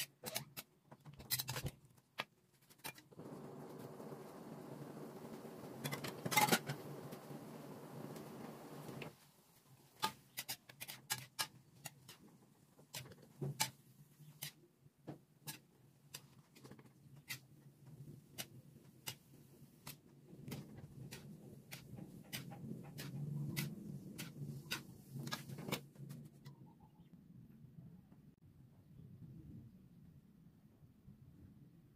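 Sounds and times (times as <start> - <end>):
metal spatula scraping a wok: 5.8 - 7.2, 9.9 - 14.6, 15.4 - 16.2
faint low hum: 26.4 - 31.9.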